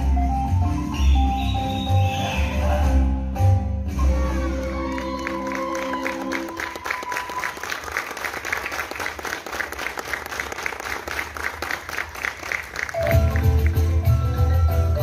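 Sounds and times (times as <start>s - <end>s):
audience applauding: 4.6s - 14.0s.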